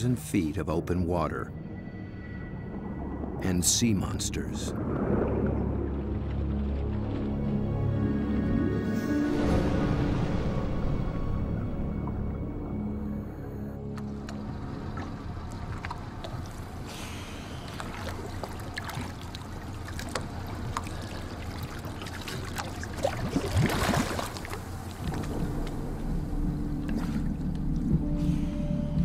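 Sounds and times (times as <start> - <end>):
low steady drone: 0.0 - 22.9, 24.4 - 29.0
water sloshing and splashing: 0.0 - 29.0.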